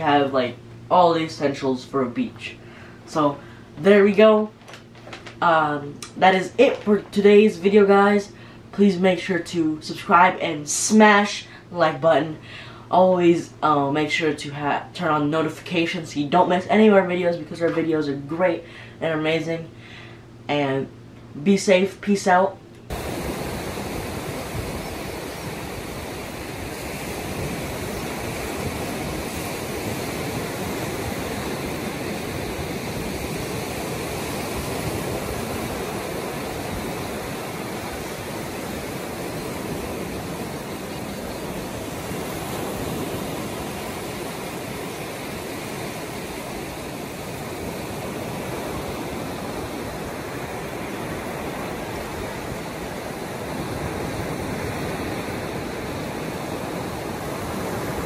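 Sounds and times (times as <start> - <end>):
waves breaking on beach: 22.9 - 58.0.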